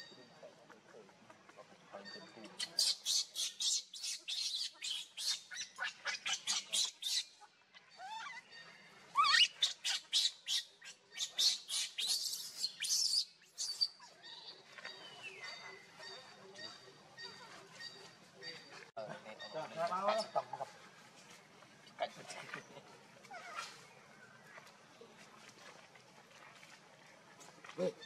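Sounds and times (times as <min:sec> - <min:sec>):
infant monkey shrieking: 0:02.6 - 0:08.5, 0:09.2 - 0:13.9.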